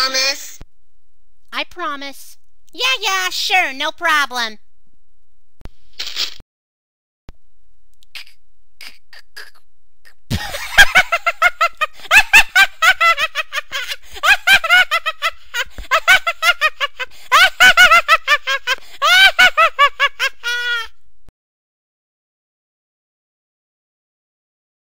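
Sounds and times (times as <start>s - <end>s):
high-pitched cartoon laughter: 10.3s - 20.9s.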